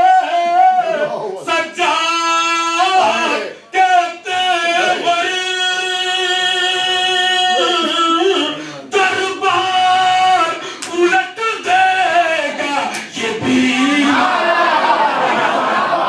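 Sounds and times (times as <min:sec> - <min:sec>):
man singing melodic recitation: 0:01.5 - 0:14.3.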